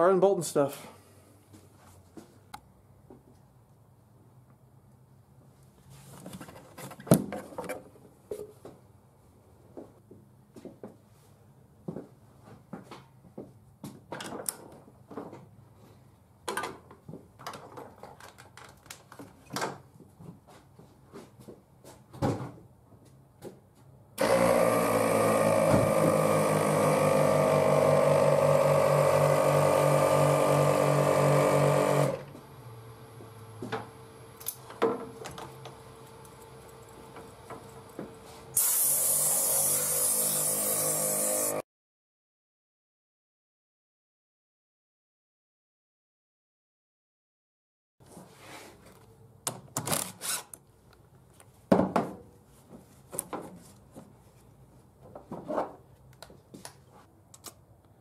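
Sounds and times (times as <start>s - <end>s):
air compressor motor humming: 24.2s - 41.6s
compressed air hissing: 38.5s - 40.3s.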